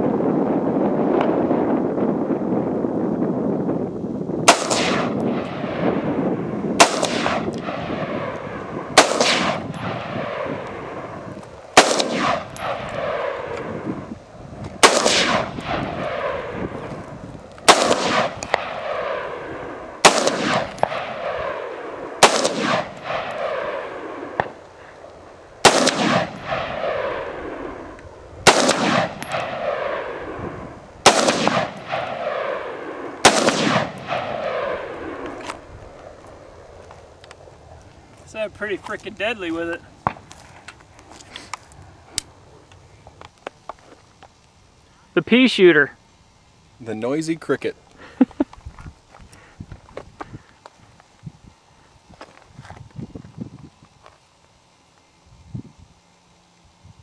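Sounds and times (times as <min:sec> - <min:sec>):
rifle shots with rolling echo: 0:04.4 - 0:37.8.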